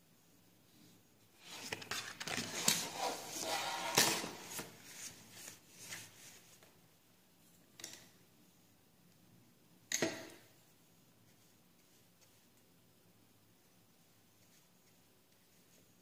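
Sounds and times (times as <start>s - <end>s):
paper rustling and scraping: 1.4s - 6.4s.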